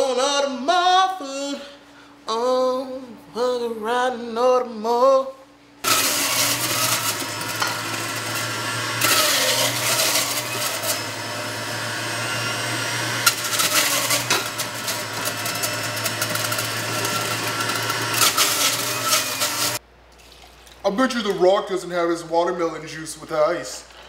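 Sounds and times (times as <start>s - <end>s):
juicer motor hum: 5.8s - 20.4s
juicer grinding fruit: 5.8s - 20.5s.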